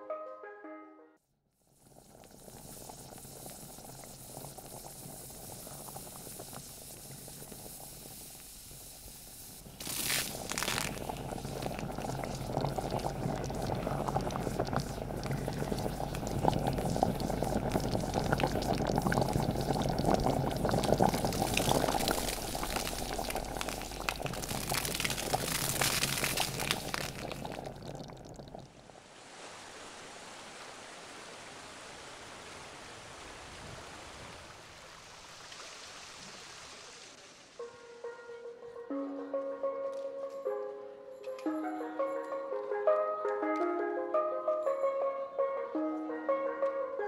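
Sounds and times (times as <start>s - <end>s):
mud-water boiling and bubbling: 1.6s - 37.6s
steam vents hissing: 1.7s - 28.2s.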